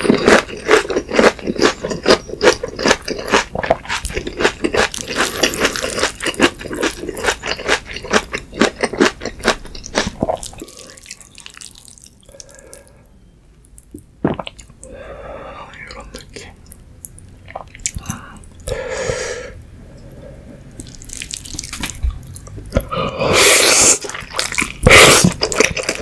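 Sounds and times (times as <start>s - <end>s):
wet chewing: 0.0s - 12.9s, 20.8s - 23.0s, 23.6s - 26.0s.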